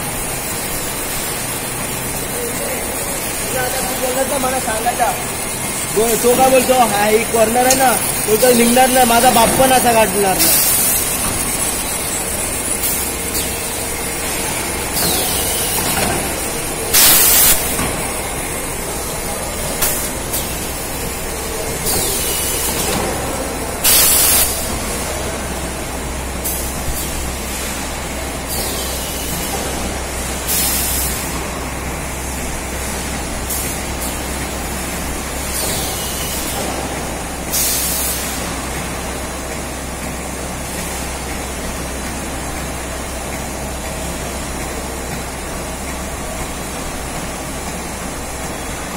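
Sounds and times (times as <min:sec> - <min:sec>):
machinery humming: 0:00.0 - 0:48.9
compressed air hissing: 0:03.4 - 0:15.9, 0:16.8 - 0:17.8.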